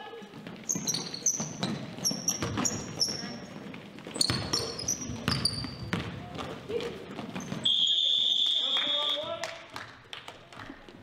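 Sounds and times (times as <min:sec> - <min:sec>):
sneakers squeaking on gym floor: 0:00.0 - 0:09.0
basketball bouncing on hardwood: 0:00.4 - 0:07.6.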